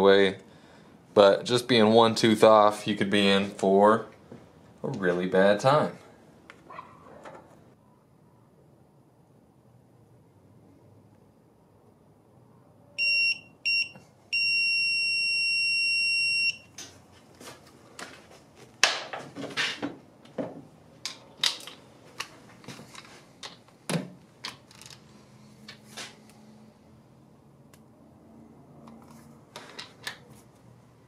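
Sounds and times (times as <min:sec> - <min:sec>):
tools clicking and knocking on metal: 0:18.8 - 0:25.0.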